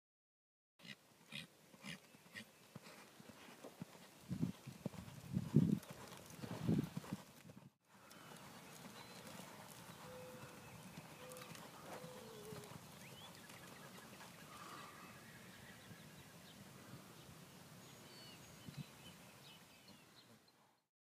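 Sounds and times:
horse hoofbeats on dirt: 0.8s - 14.6s.

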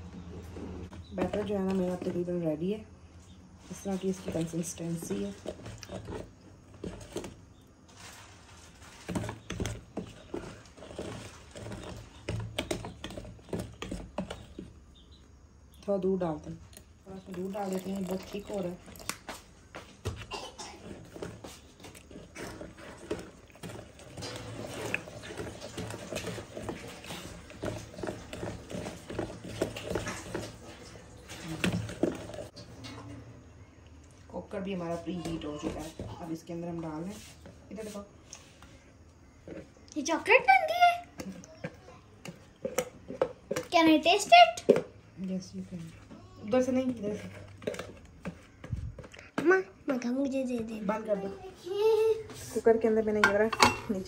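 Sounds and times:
batter squelching: 0.0s - 32.6s
utensil scraping plastic bucket: 3.5s - 15.2s, 15.8s - 33.0s, 46.0s - 49.5s.

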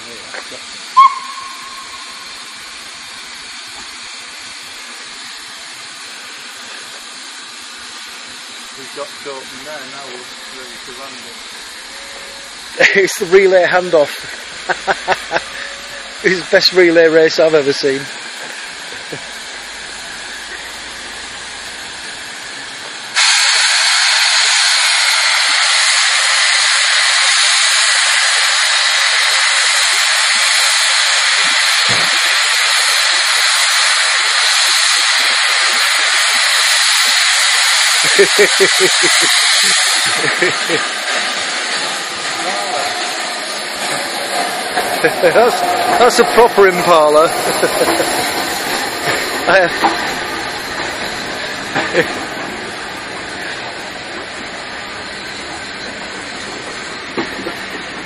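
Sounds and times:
steam hissing: 0.0s - 58.0s
high whistle tone: 1.0s - 2.5s.

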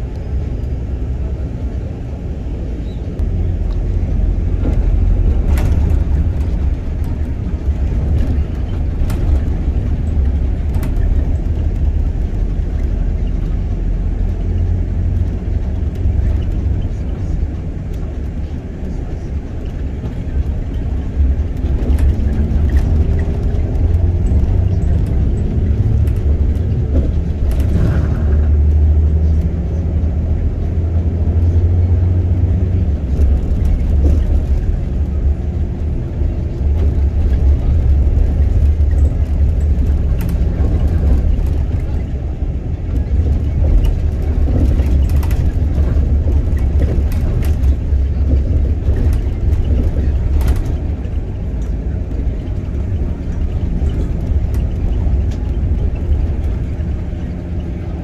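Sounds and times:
vehicle low rumble: 0.0s - 58.0s.

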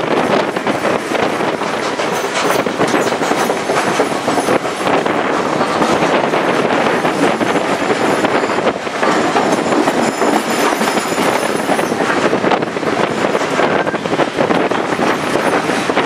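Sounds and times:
train wheels clattering on rails: 0.0s - 16.0s
high wheel squeal: 7.9s - 12.0s.

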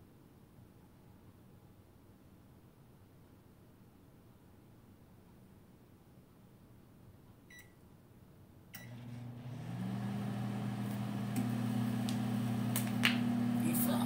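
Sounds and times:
microwave keypad beeps: 7.5s - 7.8s
microwave oven humming: 8.8s - 14.0s.

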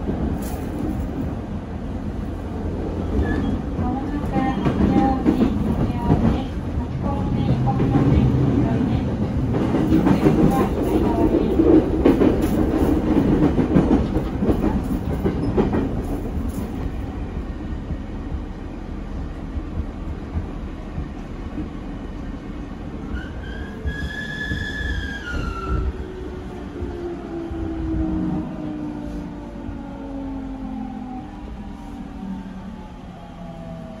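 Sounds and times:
train wheels clicking over rail joints: 9.3s - 22.4s, 23.0s - 27.0s.

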